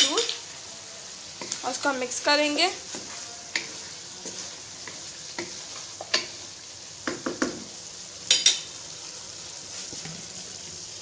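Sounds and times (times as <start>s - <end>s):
gravy sizzling in a pan: 0.0s - 11.0s
spoon scraping and knocking pan: 2.8s - 6.4s, 7.0s - 8.8s.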